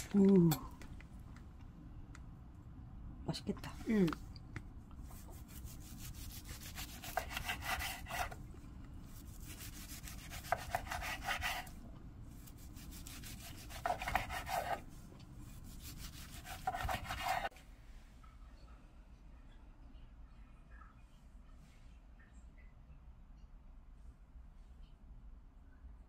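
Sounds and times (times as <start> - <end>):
knife slicing on cutting board: 5.2 - 8.4, 9.2 - 11.7, 12.5 - 14.8, 15.7 - 17.5.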